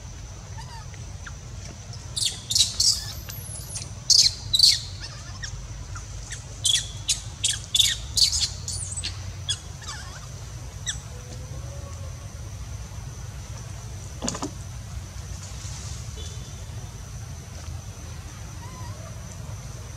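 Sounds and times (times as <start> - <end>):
young monkey squealing: 0.6 - 0.9, 2.2 - 11.0.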